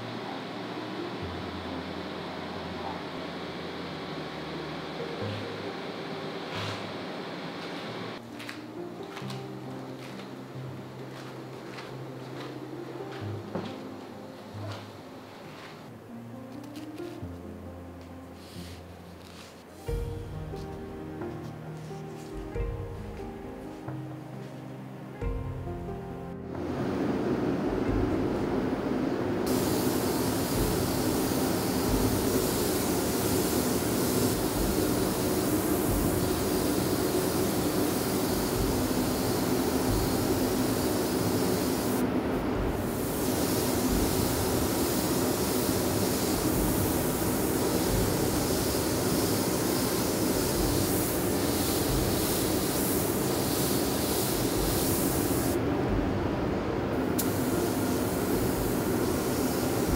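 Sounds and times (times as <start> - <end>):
extraction fan humming: 0.0 - 59.9
spray gun hissing: 18.4 - 23.2, 29.4 - 55.6, 56.9 - 59.9.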